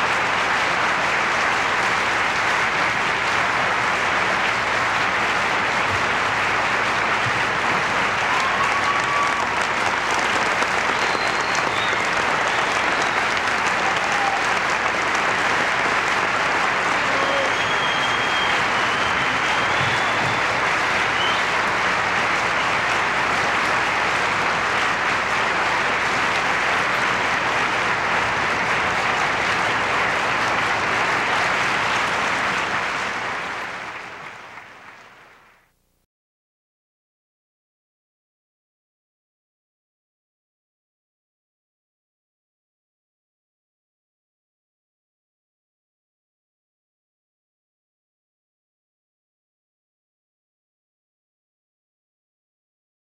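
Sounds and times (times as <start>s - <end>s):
audience applauding: 0.0s - 35.7s.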